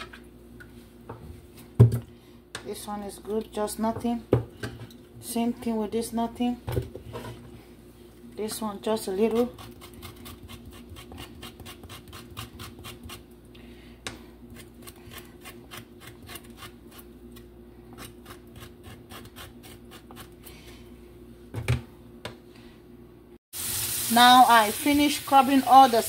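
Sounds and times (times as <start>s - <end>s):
knife scraping roasted skin: 14.5s - 20.4s.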